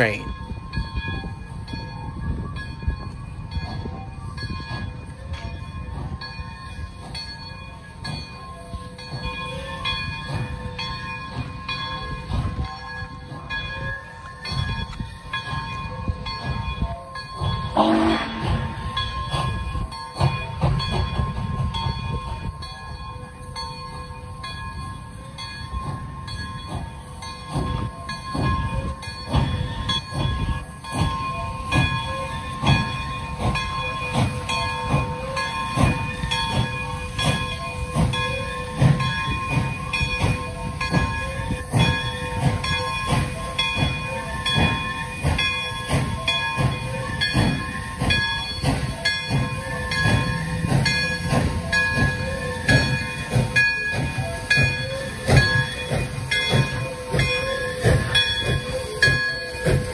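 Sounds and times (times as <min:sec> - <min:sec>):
steam train metallic clanks: 0:00.0 - 0:59.9
locomotive whistle blast: 0:17.8 - 0:18.8.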